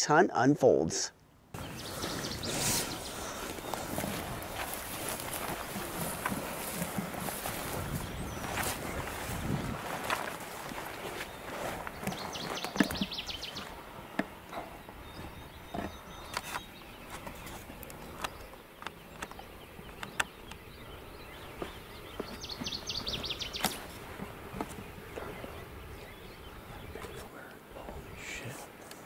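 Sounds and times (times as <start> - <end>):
bird trilling: 1.6 - 4.0.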